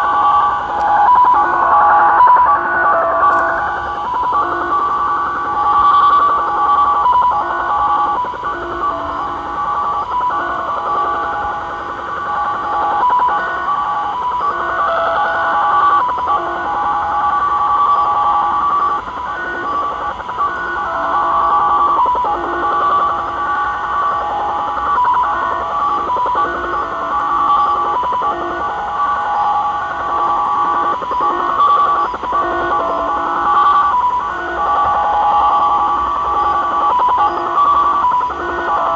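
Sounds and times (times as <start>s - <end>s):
radio static hiss: 0.0s - 38.9s
warbling digital radio tones: 0.0s - 38.9s.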